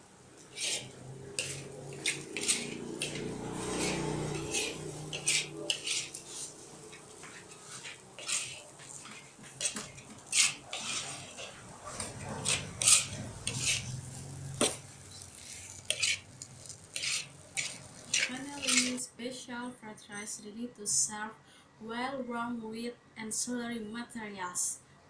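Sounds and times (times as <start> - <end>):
metal spatula scraping a wok: 0.4 - 19.0.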